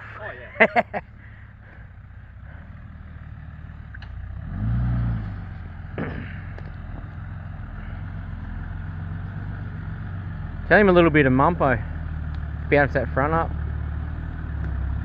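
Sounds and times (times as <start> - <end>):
engine running at low revs: 0.0 - 15.0.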